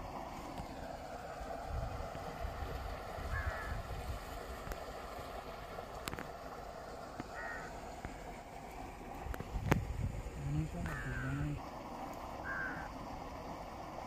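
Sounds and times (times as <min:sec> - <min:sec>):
wind rumbling on microphone: 0:01.4 - 0:04.8, 0:09.2 - 0:11.6.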